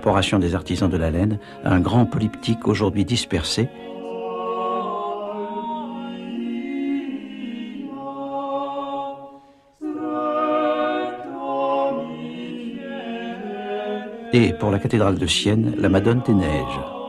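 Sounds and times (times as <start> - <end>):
choir singing a cappella: 0.0 - 17.0.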